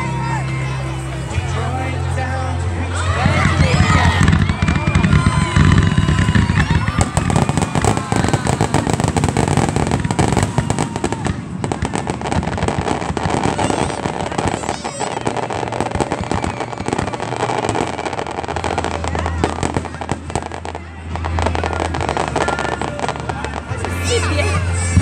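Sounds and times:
firework shells booming: 0:03.4 - 0:23.1
firework crackling pops: 0:03.4 - 0:24.0.

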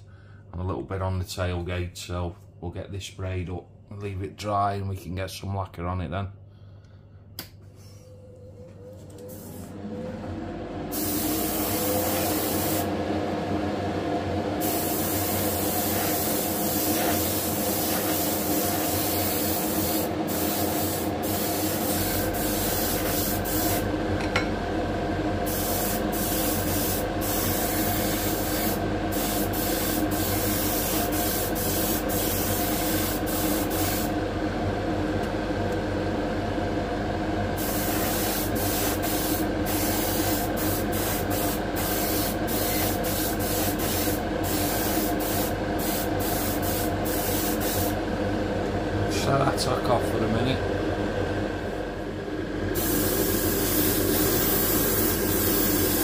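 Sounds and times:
steady motor hum: 0:06.5 - 0:56.0
airbrush spraying hiss: 0:10.9 - 0:12.9, 0:14.6 - 0:23.9, 0:25.4 - 0:34.1, 0:37.6 - 0:48.0, 0:52.8 - 0:56.0.

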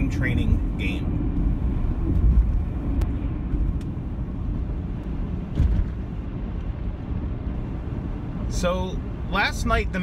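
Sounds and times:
car driving low rumble: 0:00.0 - 0:10.0
short thump: 0:05.5 - 0:06.0.

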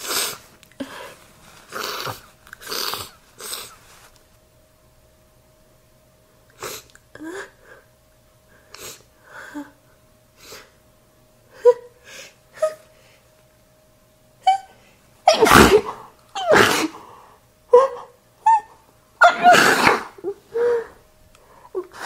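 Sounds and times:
woman sniffing: 0:00.0 - 0:04.0, 0:19.2 - 0:21.0
woman sneezing: 0:15.3 - 0:17.1, 0:19.2 - 0:20.4.

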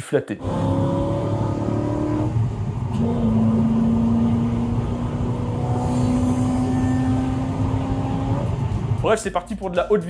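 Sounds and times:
car engine pulling at high speed: 0:00.4 - 0:09.0
low rumble: 0:02.3 - 0:09.4.

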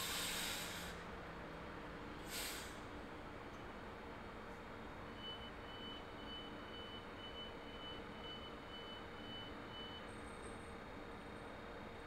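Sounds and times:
air brakes hissing: 0:00.0 - 0:01.1, 0:02.2 - 0:02.9.

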